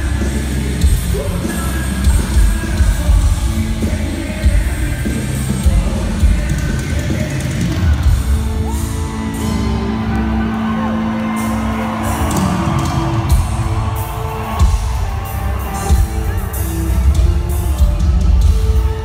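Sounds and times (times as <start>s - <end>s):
loud rock band playing live: 0.0s - 19.0s
fans whooping: 7.0s - 19.0s.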